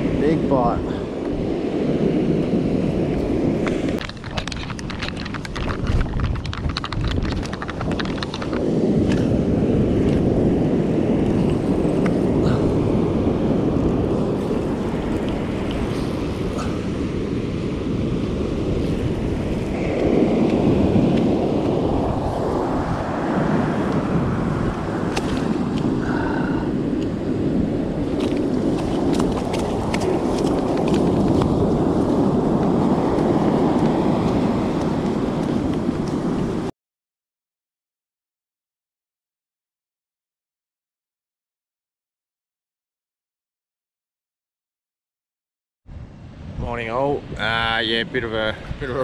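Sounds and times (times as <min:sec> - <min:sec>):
surf washing: 0:00.0 - 0:36.7, 0:45.9 - 0:49.0
wind buffeting microphone: 0:00.0 - 0:36.7, 0:45.9 - 0:49.0.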